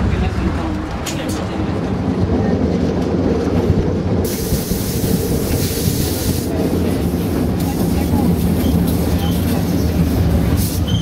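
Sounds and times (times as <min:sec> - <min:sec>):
streetcar motors and wheels rumbling: 0:00.0 - 0:11.0
hiss: 0:04.2 - 0:11.0.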